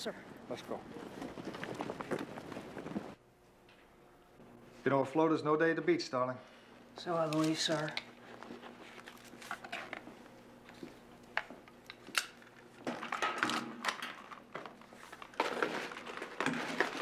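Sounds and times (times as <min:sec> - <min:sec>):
faint steady hum: 0:00.0 - 0:17.0
rustling handling noise: 0:07.0 - 0:11.0, 0:12.4 - 0:17.0.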